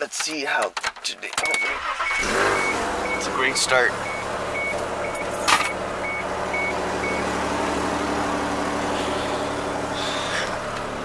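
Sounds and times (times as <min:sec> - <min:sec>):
high warning chime beeping: 0:01.5 - 0:03.4, 0:04.0 - 0:05.4, 0:06.0 - 0:07.3
car engine humming: 0:01.6 - 0:11.0.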